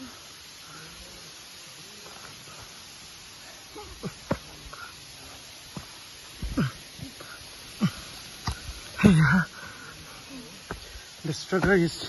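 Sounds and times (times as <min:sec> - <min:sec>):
steady hiss: 0:00.0 - 0:12.0
breathy grunts: 0:06.4 - 0:07.2
person breathing hard: 0:09.5 - 0:11.2.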